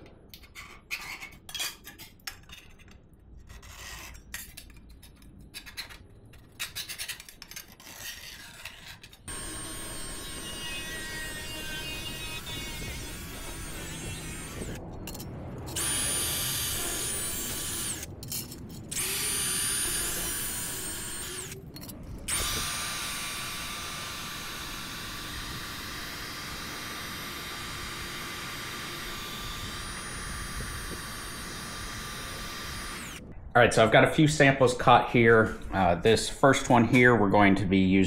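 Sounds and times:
angle grinder motor whine: 9.3 - 14.8, 15.7 - 18.1, 18.9 - 21.6, 22.2 - 33.2.

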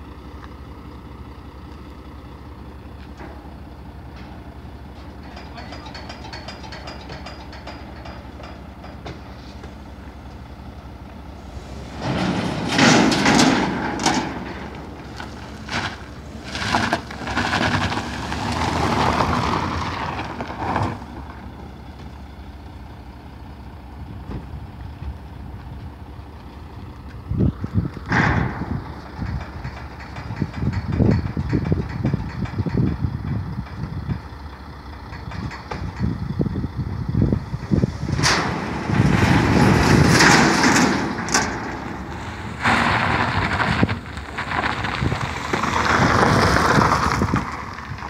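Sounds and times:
truck engine idling: 0.0 - 48.0
car clanking down metal ramps: 0.7 - 25.3, 26.0 - 48.0
footsteps on metal ramp: 2.9 - 18.5, 24.2 - 36.5.

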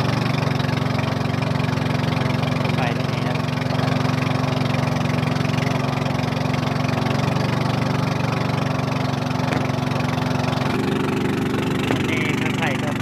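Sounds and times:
boat engine drone: 0.0 - 13.0.

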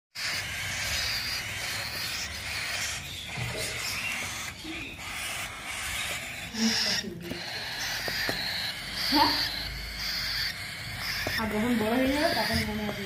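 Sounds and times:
chicks hissing begging calls: 0.2 - 13.0.

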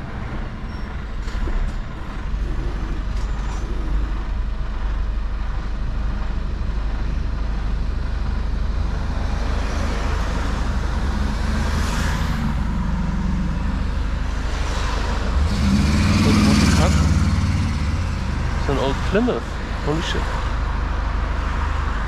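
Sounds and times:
tyre and road noise: 0.0 - 22.0
truck diesel engine running: 4.0 - 21.4.

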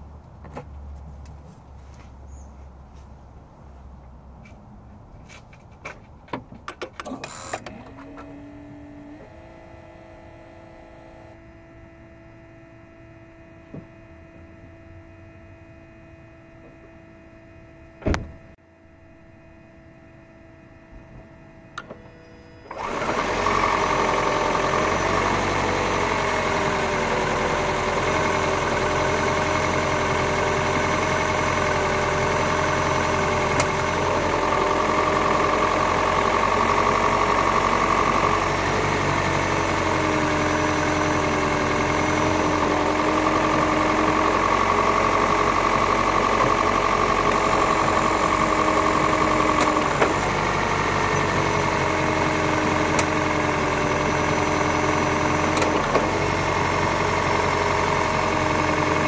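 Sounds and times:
car engine running: 6.8 - 59.0
faint electric whine: 7.0 - 51.4.

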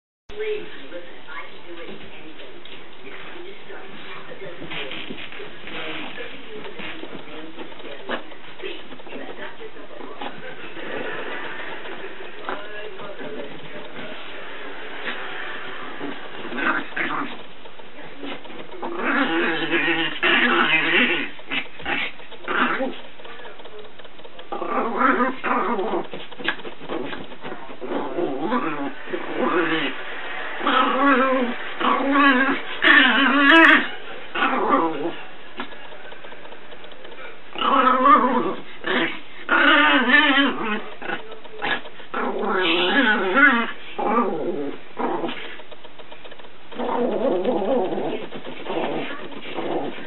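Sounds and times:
puppy growling and whining: 15.8 - 17.4, 18.2 - 23.1, 24.4 - 35.8, 37.1 - 46.1, 46.7 - 50.0.

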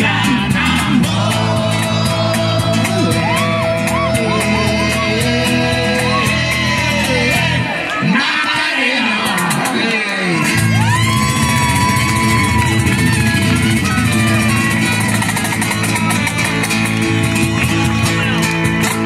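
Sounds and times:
electric bass: 0.0 - 7.7, 10.4 - 19.0
cajon beat: 0.0 - 8.0, 9.1 - 19.0
acoustic guitar: 0.0 - 19.0.

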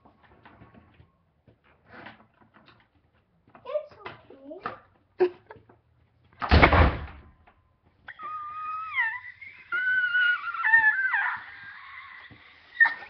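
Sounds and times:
loud thump: 6.4 - 7.4
dog whining: 8.1 - 13.0.

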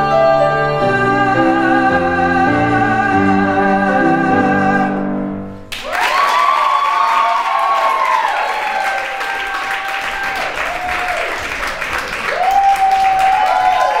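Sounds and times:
audience applauding: 5.7 - 14.0
voices whooping: 5.8 - 11.4, 12.3 - 14.0.

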